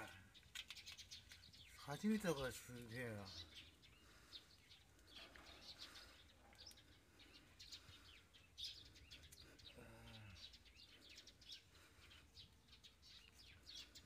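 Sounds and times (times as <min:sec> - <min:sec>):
small birds chirping: 0:00.0 - 0:14.0
low voice murmur: 0:09.6 - 0:10.6.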